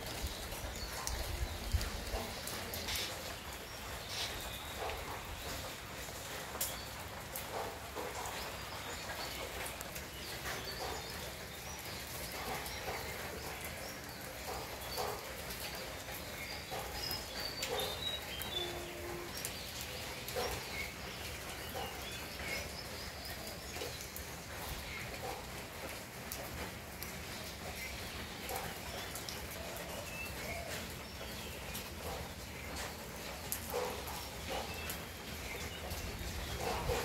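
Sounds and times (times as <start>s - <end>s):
bird calls and chirps: 0.4s - 5.7s.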